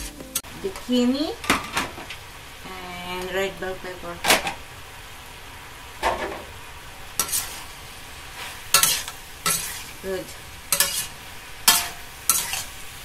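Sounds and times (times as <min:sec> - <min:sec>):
vegetables sizzling: 0:00.0 - 0:13.0
metal spatula scraping pan: 0:07.2 - 0:07.7, 0:08.4 - 0:10.0, 0:10.7 - 0:12.8.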